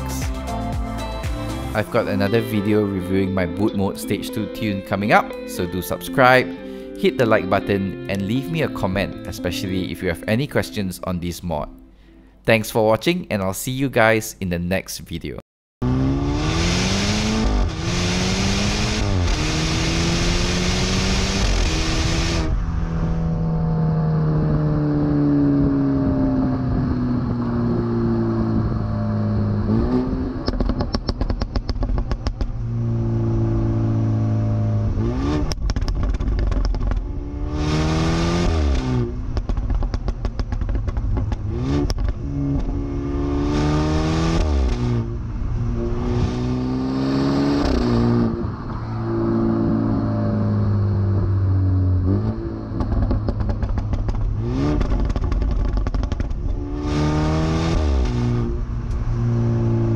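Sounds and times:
car exhaust accelerating: 15.8s - 59.9s
exhaust crackles: 15.8s - 59.9s.

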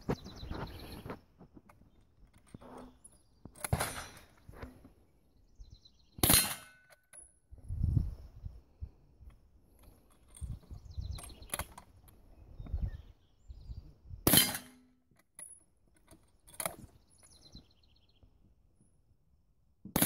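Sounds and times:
rifle shot: 3.6s - 4.3s, 6.2s - 6.8s, 14.3s - 14.8s.

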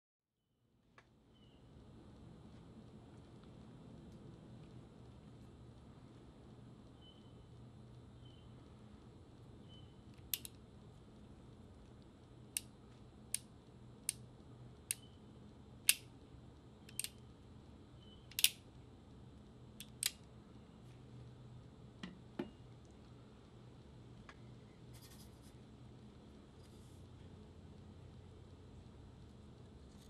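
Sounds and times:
revolver hammer metallic clicks: 18.3s - 18.6s.

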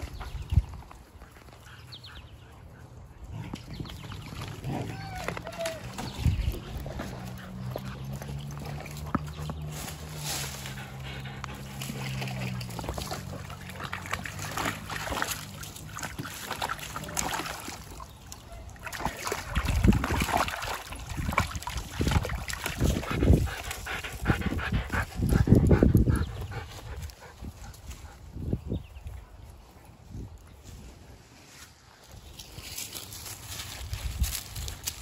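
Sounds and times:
dogs panting: 5.8s - 17.2s, 22.1s - 28.6s.

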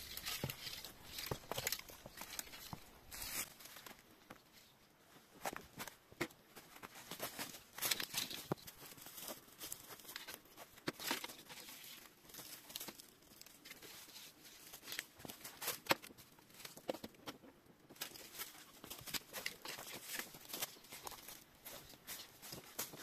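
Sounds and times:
footsteps crunching through dry leaves: 0.0s - 3.8s, 18.2s - 23.0s.

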